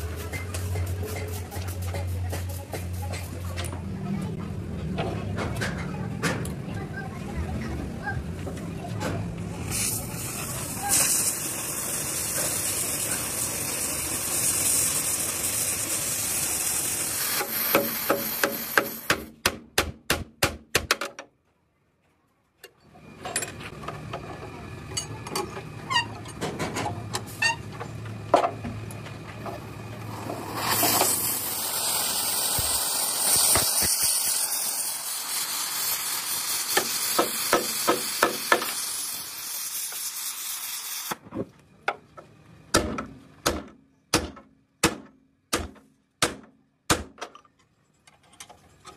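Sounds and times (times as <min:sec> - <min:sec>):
cutting torch hissing: 0:09.5 - 0:19.1, 0:29.6 - 0:41.2.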